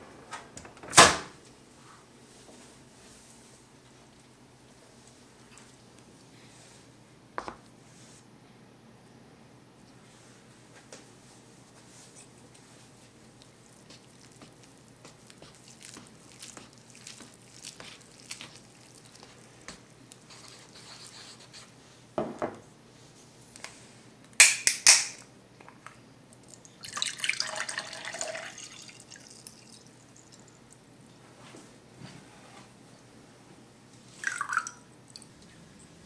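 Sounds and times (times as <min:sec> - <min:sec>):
glass set down on stone counter: 0:22.2 - 0:22.6
drink pouring into glass: 0:26.8 - 0:29.9, 0:34.2 - 0:34.9.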